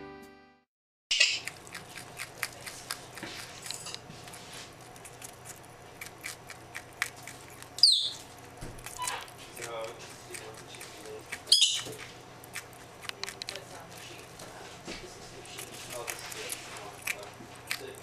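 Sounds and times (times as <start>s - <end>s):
squirrel crunching carrot: 1.2s - 18.0s
squirrel high call: 7.8s - 8.2s, 9.0s - 9.3s, 11.5s - 11.9s.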